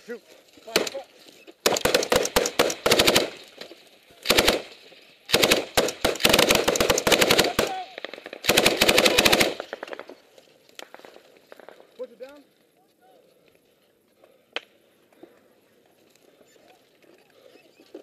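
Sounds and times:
machine gun automatic fire: 0:01.6 - 0:03.5, 0:04.2 - 0:10.2.

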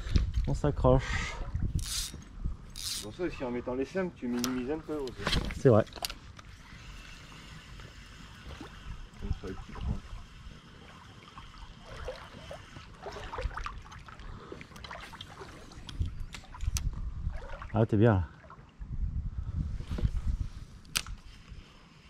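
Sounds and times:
river water trickling: 0:01.6 - 0:18.9.

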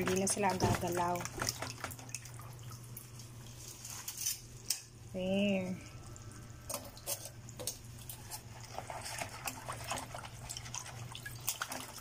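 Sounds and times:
crabs clicking in water: 0:00.0 - 0:03.3.

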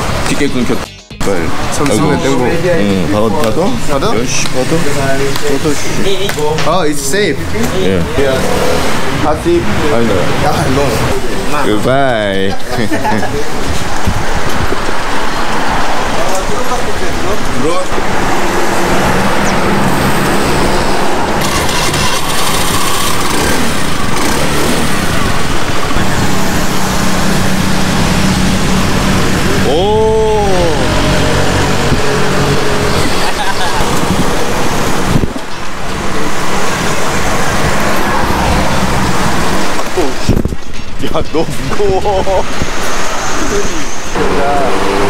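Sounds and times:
road noise rush: 0:00.0 - 0:45.0
wind rushing over microphone: 0:13.3 - 0:16.2, 0:28.6 - 0:44.2
vehicle engine running: 0:17.3 - 0:40.2
motor scooter riding: 0:18.0 - 0:40.2.

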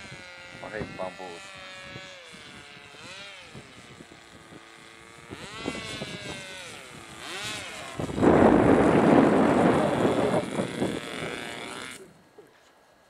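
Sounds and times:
model airplane motor droning: 0:00.0 - 0:12.6
loud rushing noise: 0:08.2 - 0:10.4.

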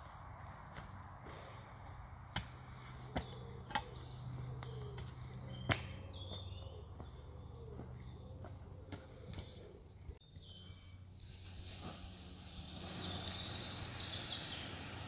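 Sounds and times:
birds singing: 0:00.7 - 0:11.2, 0:12.6 - 0:15.0.

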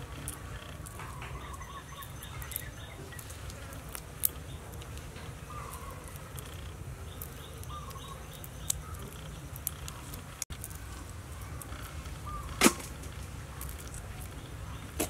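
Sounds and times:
shrimp shells clicking: 0:00.1 - 0:11.9.

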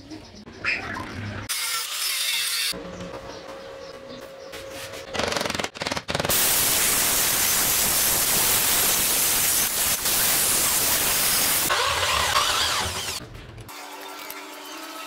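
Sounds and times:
arc welding crackle: 0:06.3 - 0:11.7
cut-off wheel grinding steel: 0:09.3 - 0:13.2.

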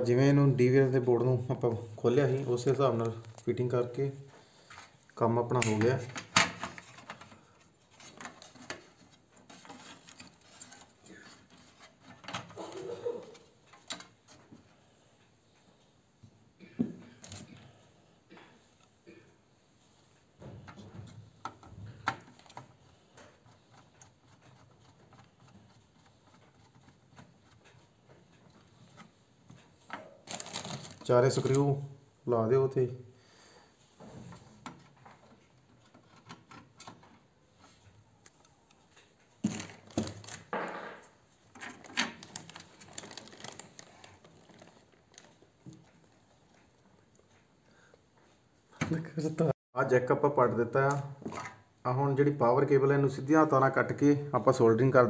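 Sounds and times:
parts and cables rattling: 0:05.6 - 0:14.8, 0:16.6 - 0:19.2, 0:20.4 - 0:31.8, 0:34.0 - 0:47.4.

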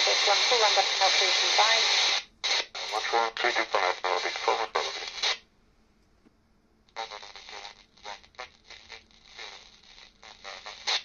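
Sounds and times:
garbled radio voice: 0:02.8 - 0:05.4.

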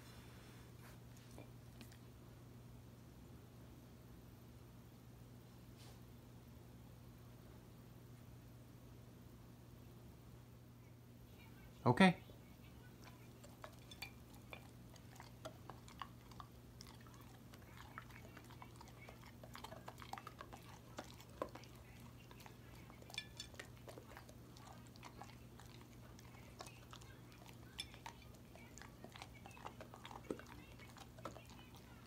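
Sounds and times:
low steady hum: 0:00.0 - 0:32.0
dog chewing: 0:12.8 - 0:32.0
teeth clicking on plate: 0:13.0 - 0:32.0.

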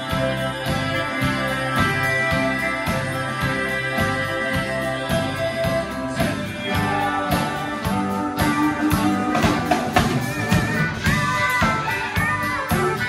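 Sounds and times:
acoustic guitar strumming: 0:00.0 - 0:13.0
drum kit beat: 0:00.0 - 0:13.0
electric guitar: 0:00.0 - 0:13.0
steel guitar: 0:00.0 - 0:13.0.

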